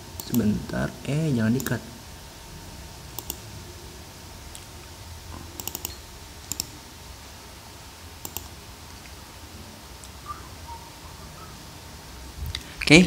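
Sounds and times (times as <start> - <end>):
steady low hum: 0.0 - 13.0
computer mouse clicking: 0.2 - 0.5, 3.2 - 3.4, 5.6 - 6.7, 8.2 - 8.6.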